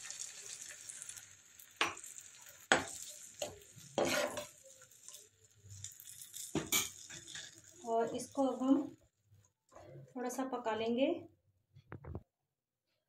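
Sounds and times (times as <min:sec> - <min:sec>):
sauce sizzling in a pan: 0:00.0 - 0:09.2
ladle scraping pan: 0:02.7 - 0:05.2.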